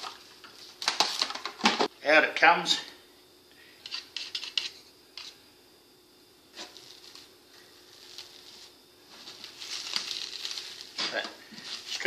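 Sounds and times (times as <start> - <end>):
cling wrap crinkling: 6.7 - 12.0.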